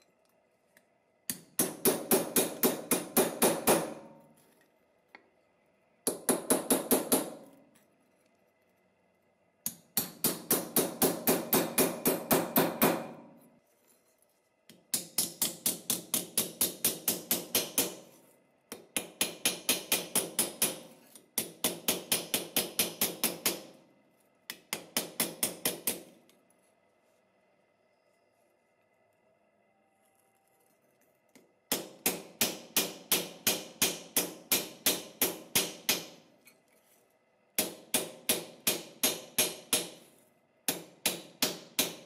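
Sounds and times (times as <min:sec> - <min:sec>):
hammer striking steel strip: 0:01.3 - 0:04.3, 0:09.7 - 0:13.4, 0:14.7 - 0:23.8, 0:24.5 - 0:26.2, 0:31.4 - 0:36.6, 0:37.6 - 0:40.1, 0:40.7 - 0:42.0.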